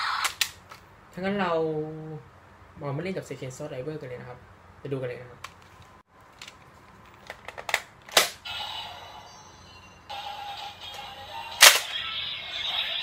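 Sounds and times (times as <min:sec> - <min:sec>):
toy electronic sound effects: 0:08.4 - 0:13.0.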